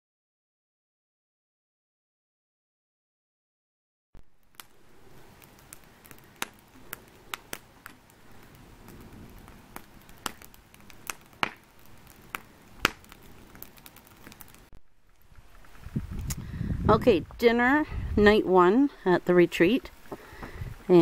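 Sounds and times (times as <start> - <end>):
hiss of burning: 4.2 - 17.0, 19.0 - 21.0
campfire crackling: 4.2 - 21.0
sharp pops and snaps: 4.4 - 16.5.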